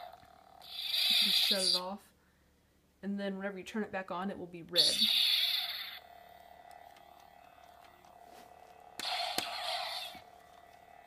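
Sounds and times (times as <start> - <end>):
toy lightsaber electronic hum: 0.0 - 2.0, 4.7 - 11.0.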